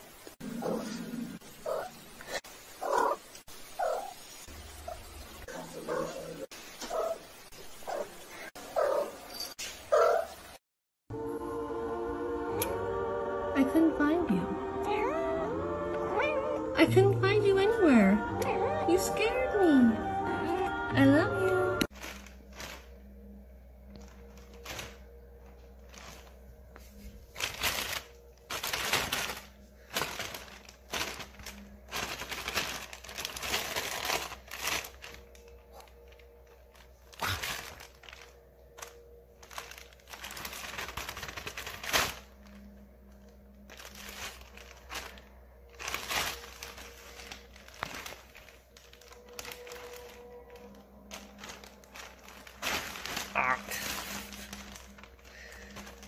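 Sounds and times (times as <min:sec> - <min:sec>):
plastic bag rustling: 0:21.6 - 0:56.0.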